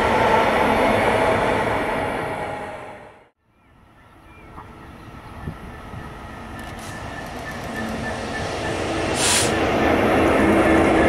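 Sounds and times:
diesel locomotive engine running: 4.2s - 11.0s
train wheels rumbling on rails: 4.6s - 11.0s
short hiss: 9.2s - 9.6s.

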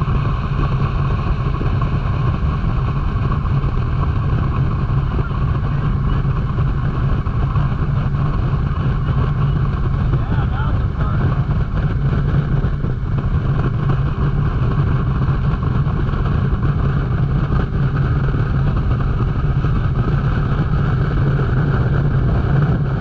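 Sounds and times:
motorboat engine drone: 0.0s - 23.0s.

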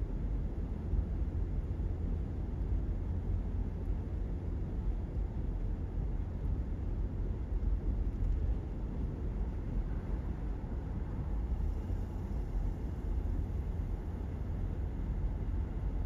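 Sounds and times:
road and tyre noise inside car: 0.0s - 16.0s.

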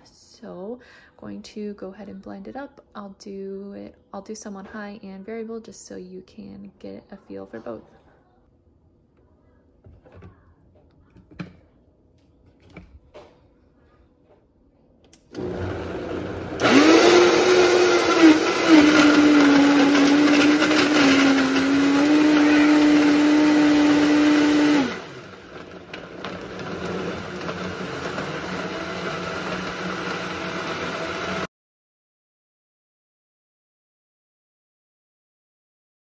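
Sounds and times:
blender motor whining: 15.2s - 31.5s.

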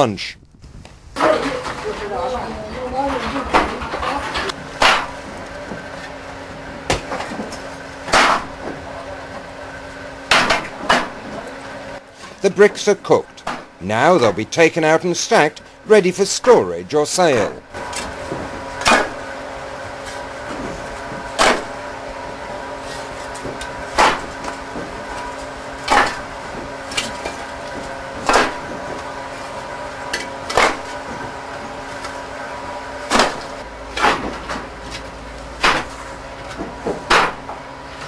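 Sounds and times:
steady hum: 0.0s - 38.0s
bricks knocking and clinking: 25.8s - 27.4s.

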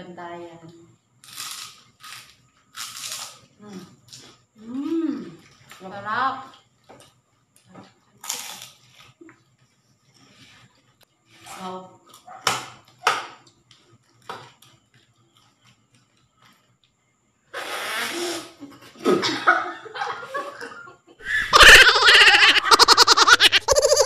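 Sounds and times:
woman laughing loudly: 19.0s - 24.0s.

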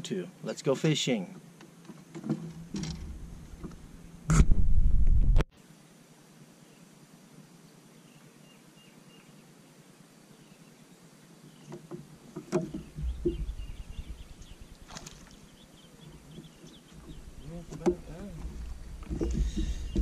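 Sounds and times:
low rumble: 2.6s - 5.4s, 12.9s - 15.5s, 17.1s - 20.0s
faint bird chirps: 7.7s - 9.6s, 12.7s - 18.5s, 19.1s - 20.0s
knocks and bumps on boat deck: 12.4s - 14.3s, 16.4s - 20.0s.

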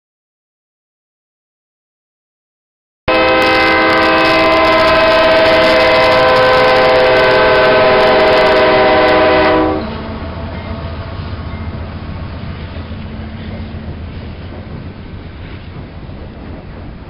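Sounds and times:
locomotive air horn: 3.1s - 11.2s
passing train rumble: 3.1s - 17.0s.

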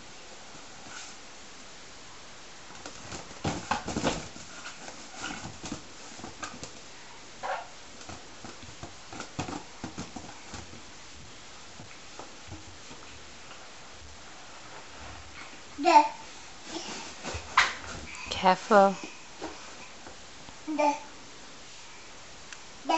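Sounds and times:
balloons rubbing and tapping: 2.8s - 6.8s, 7.4s - 15.6s.

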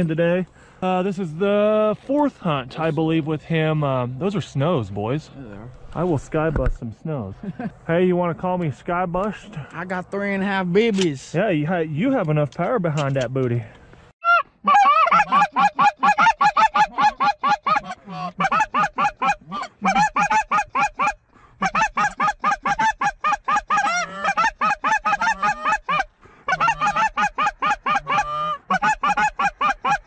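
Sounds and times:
goose calls honking and clucking: 14.2s - 30.0s.

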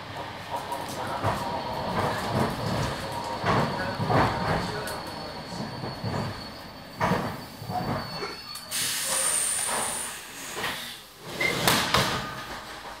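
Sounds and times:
knocks inside train carriage: 7.0s - 8.0s, 11.6s - 13.0s
hiss of compressed air: 8.7s - 11.1s.

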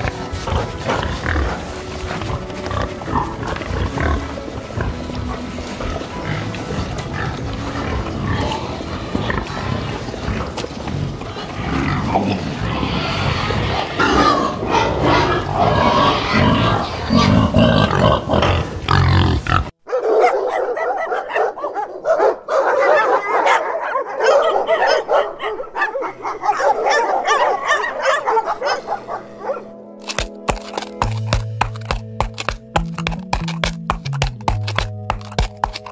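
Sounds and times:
pigs grunting and squealing: 0.0s - 19.8s
dogs barking and yelping: 19.8s - 29.8s.

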